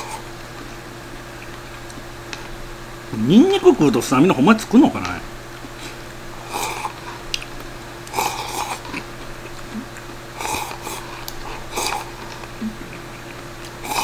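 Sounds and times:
eating sounds: 0:00.0 - 0:14.0
man slurping noodles: 0:06.4 - 0:07.2, 0:08.1 - 0:09.0, 0:09.7 - 0:14.0.

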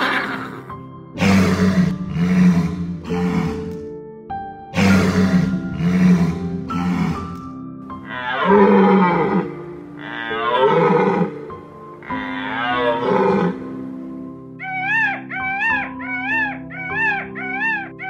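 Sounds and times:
background music: 0:00.0 - 0:18.0
deer stag roaring: 0:01.2 - 0:03.8, 0:04.8 - 0:07.4, 0:08.0 - 0:14.0.

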